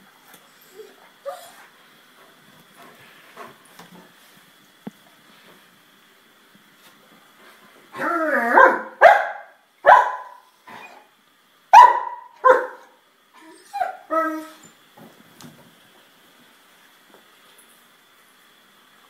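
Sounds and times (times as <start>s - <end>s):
dog barking: 8.6s - 10.5s, 11.7s - 12.9s.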